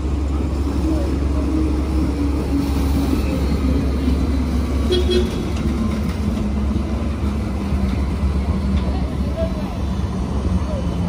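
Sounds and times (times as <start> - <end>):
tram passing rumble and hum: 0.0 - 11.0.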